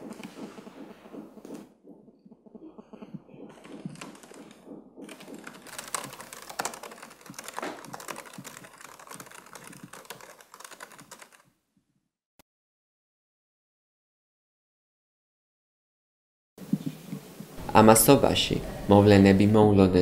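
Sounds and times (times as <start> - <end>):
fast typing on laptop keyboard: 3.0 - 11.5.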